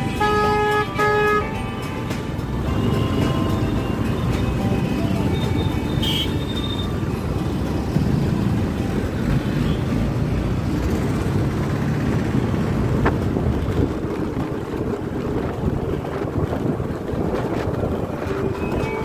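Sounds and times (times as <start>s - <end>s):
engine and road noise: 0.0s - 19.0s
wind on microphone: 12.7s - 19.0s.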